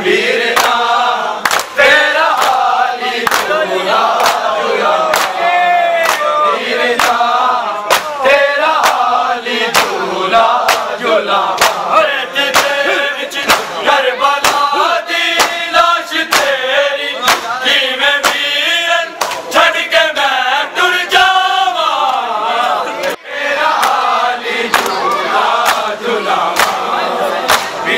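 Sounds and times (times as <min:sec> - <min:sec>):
men chanting in unison: 0:00.0 - 0:27.9
chest slaps on a steady beat: 0:01.4 - 0:04.5, 0:07.0 - 0:08.2, 0:08.8 - 0:11.9, 0:12.5 - 0:13.8, 0:14.4 - 0:16.6, 0:17.2 - 0:17.6, 0:18.2 - 0:18.5, 0:19.2 - 0:19.5, 0:23.8 - 0:24.1, 0:24.7 - 0:25.0, 0:25.6 - 0:26.8, 0:27.5 - 0:27.8.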